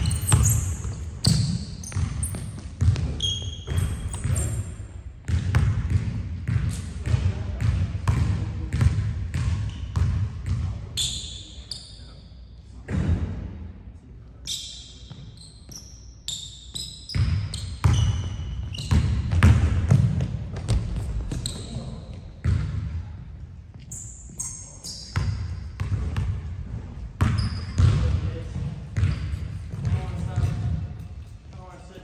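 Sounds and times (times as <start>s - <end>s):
basketball bouncing on hardwood floor: 0.0s - 4.5s, 5.2s - 10.7s, 18.8s - 21.5s, 27.2s - 28.2s, 29.0s - 30.8s
sneakers squeaking on court: 0.0s - 7.2s, 8.1s - 12.3s, 14.4s - 22.9s, 23.7s - 26.4s, 27.2s - 31.7s.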